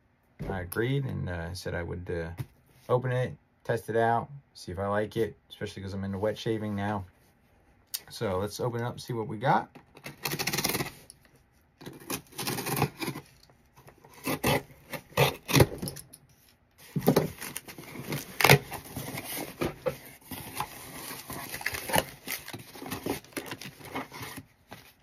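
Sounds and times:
cardboard scraping and rustling: 11.8s - 25.0s.

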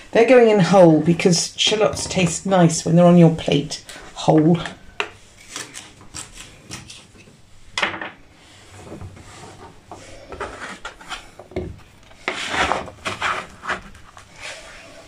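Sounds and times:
plastic scraper on wooden board: 12.2s - 13.9s.

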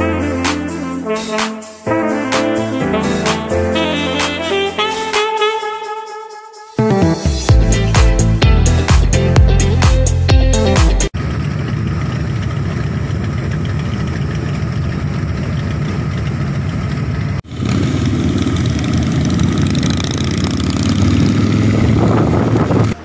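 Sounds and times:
motorcycle engines running: 11.2s - 23.0s.

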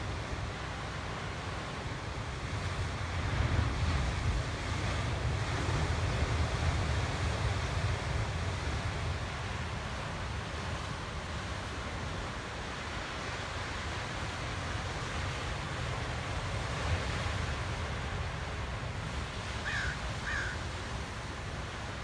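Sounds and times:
ocean surf breaking on rocks: 0.0s - 22.0s
crow cawing: 19.6s - 20.7s.

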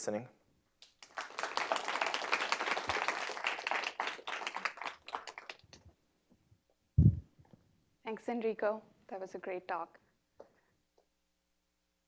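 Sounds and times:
audience applauding: 0.8s - 5.8s.

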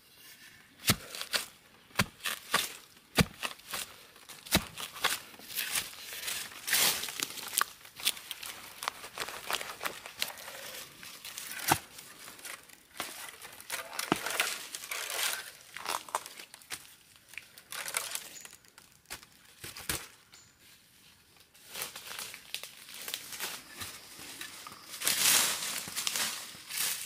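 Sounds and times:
soil crumbling and rustling: 0.0s - 20.5s, 21.3s - 27.0s
digging tool knocks: 0.8s - 5.8s.

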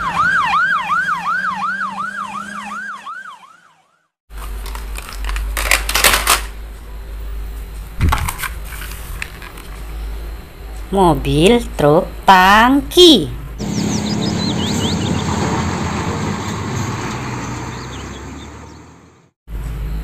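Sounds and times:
police siren yelping: 0.0s - 4.1s
plastic toys clattering: 4.3s - 6.5s, 8.1s - 9.8s.

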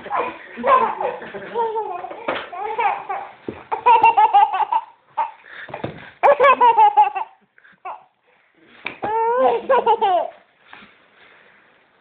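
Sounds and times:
small child giggling: 6.2s - 8.0s, 9.0s - 10.4s.

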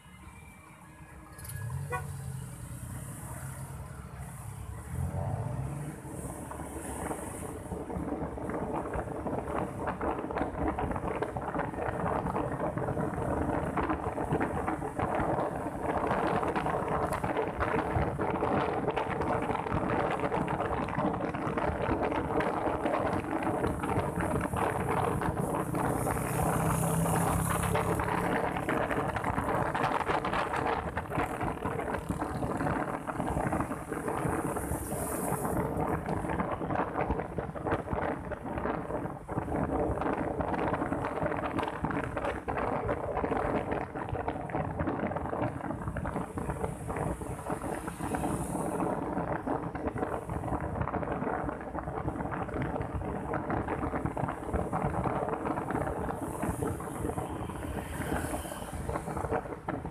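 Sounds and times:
passing vehicle engine: 0.0s - 10.1s, 23.3s - 37.2s, 55.7s - 59.9s
road noise: 0.0s - 59.9s
motorbike engine hum: 1.4s - 59.9s
wind buffeting microphone: 1.6s - 59.9s.

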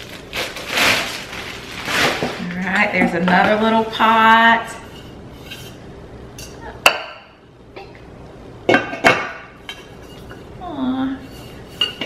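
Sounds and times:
metal saucepan clinking: 11.6s - 12.0s.

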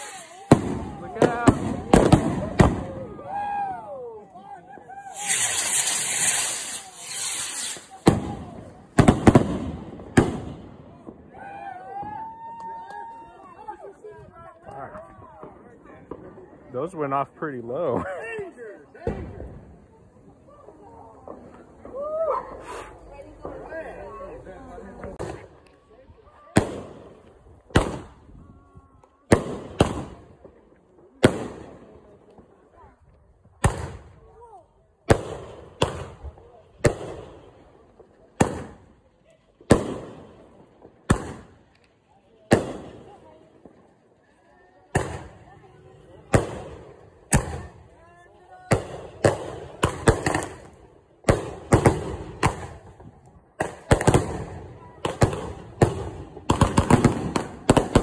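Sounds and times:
fireworks bangs with echo: 0.0s - 3.4s, 4.7s - 12.2s, 18.9s - 20.0s, 24.9s - 25.8s, 26.4s - 28.3s, 29.2s - 32.7s, 33.4s - 39.0s, 39.6s - 44.0s, 44.8s - 48.0s, 48.6s - 58.0s.

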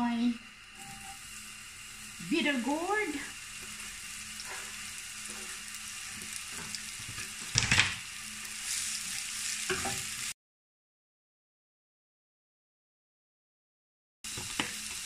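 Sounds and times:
vegetables sizzling in oil: 0.0s - 10.4s, 14.3s - 15.0s
spatula stirring against pan: 0.7s - 7.5s, 8.4s - 10.3s.

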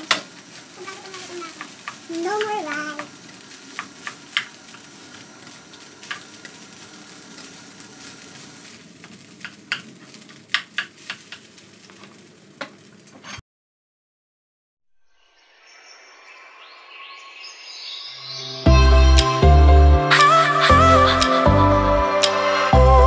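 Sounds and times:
rice sizzling in a pan: 0.0s - 13.3s.

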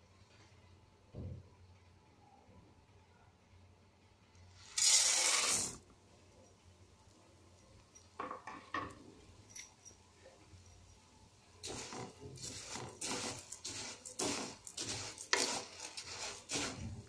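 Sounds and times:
dry pasta poured into metal pan: 4.6s - 5.8s, 11.6s - 17.0s.

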